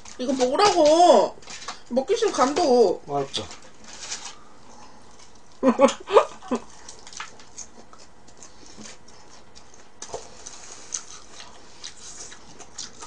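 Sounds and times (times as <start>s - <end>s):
paper rustling: 3.4s - 4.4s
person chewing: 4.3s - 13.0s.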